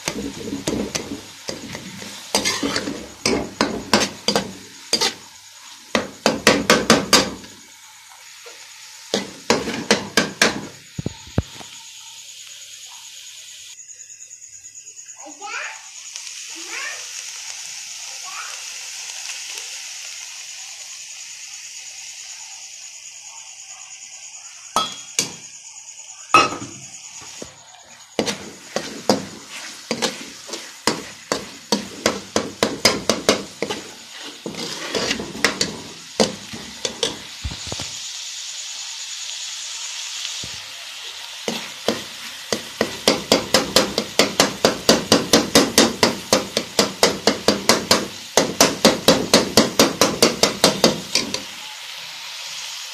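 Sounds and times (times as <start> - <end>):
metal spoon scraping a pan: 0.0 - 7.6, 9.1 - 10.1, 28.2 - 37.3
mince sizzling in a metal pan: 0.0 - 52.9.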